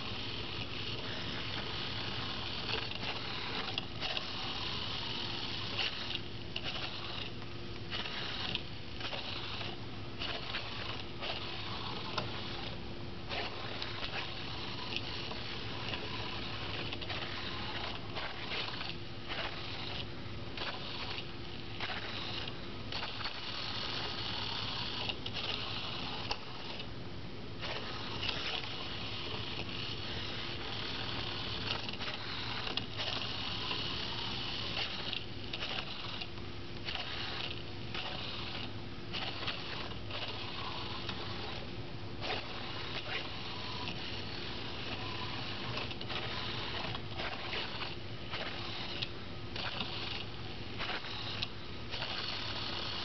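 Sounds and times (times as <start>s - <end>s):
small geared motors whirring: 0.0s - 26.9s, 27.6s - 53.0s.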